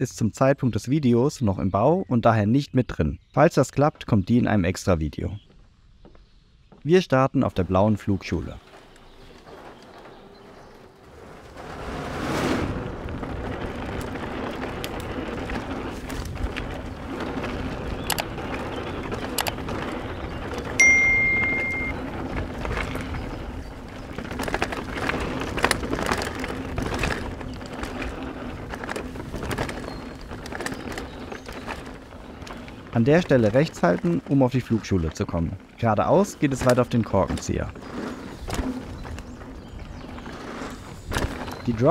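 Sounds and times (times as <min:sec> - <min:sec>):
rolling tyre and wind noise: 0:00.0 - 0:41.9
bike rattling over bumps: 0:03.2 - 0:41.9
high ringing ding: 0:20.8 - 0:22.0.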